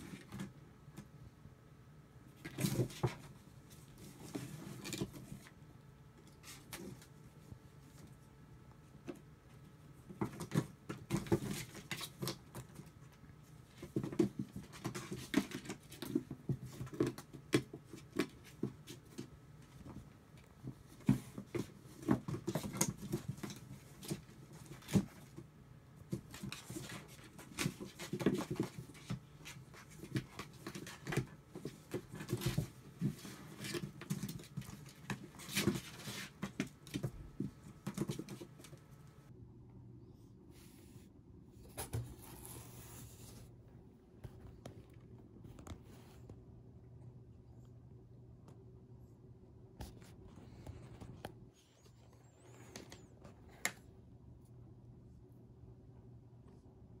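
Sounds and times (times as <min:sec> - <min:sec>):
kitten paws scratching cardboard: 0:02.3 - 0:39.3.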